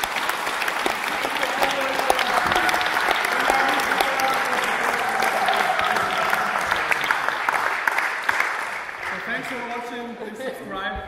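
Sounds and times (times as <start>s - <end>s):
hand clapping: 0.0s - 9.8s.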